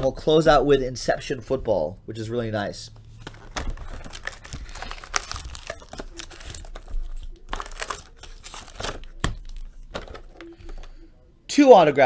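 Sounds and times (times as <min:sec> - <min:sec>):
foil packs crinkling: 0:03.1 - 0:11.0.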